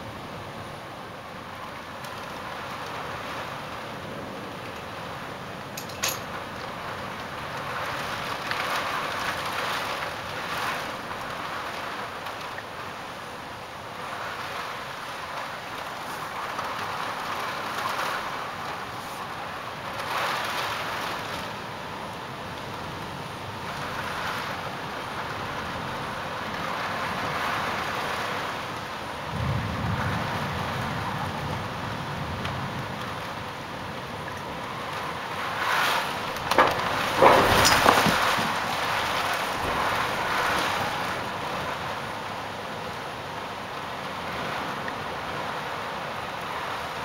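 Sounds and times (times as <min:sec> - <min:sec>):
heavy rain hissing: 0:00.0 - 0:47.0
wind gusts buffeting microphone: 0:14.2 - 0:43.4.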